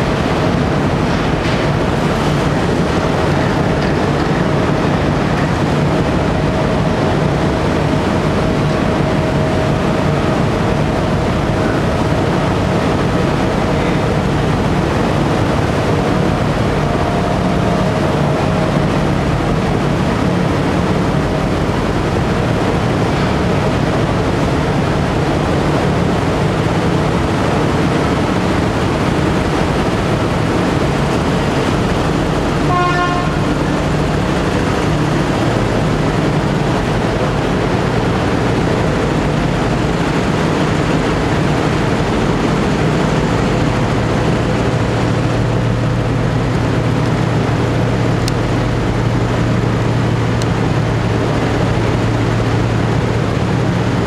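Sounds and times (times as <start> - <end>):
ferry engine hum: 0.0 - 54.0
water noise: 0.0 - 54.0
wind: 0.0 - 54.0
ship horn: 3.8 - 22.0, 31.6 - 35.6.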